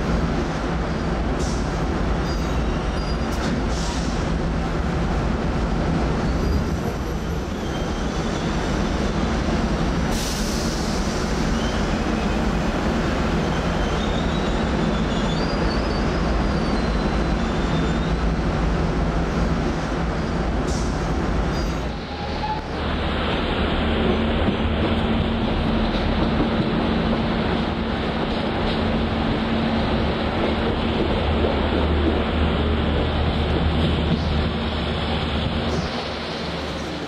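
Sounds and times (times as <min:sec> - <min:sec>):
train rumbling on track: 0:00.0 - 0:37.0
high wheel squeals: 0:06.3 - 0:08.6, 0:13.4 - 0:18.2.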